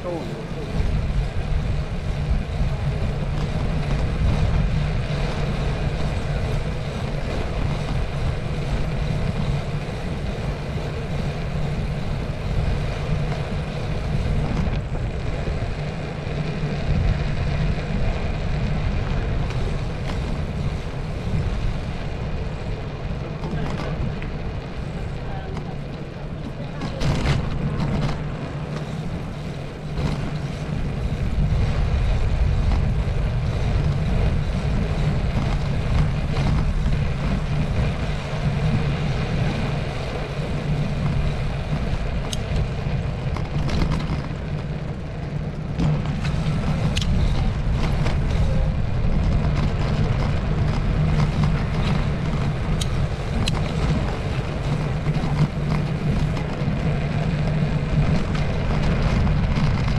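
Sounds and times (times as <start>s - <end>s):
bicycle tyres rumbling on tarmac: 0.0s - 59.9s
small clicks and rattles: 25.4s - 59.9s.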